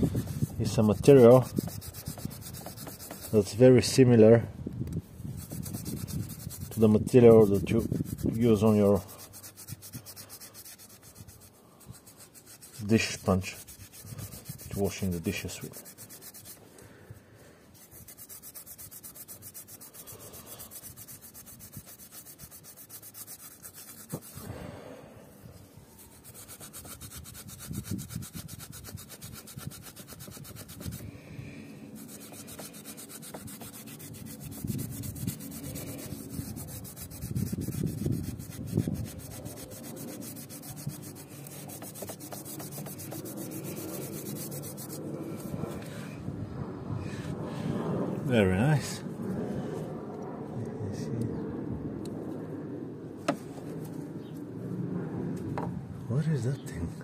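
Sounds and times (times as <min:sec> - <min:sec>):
scouring pad scrubbing metal: 0:00.0 - 0:03.6, 0:05.4 - 0:16.6, 0:17.8 - 0:24.4, 0:26.0 - 0:31.0, 0:31.9 - 0:45.0.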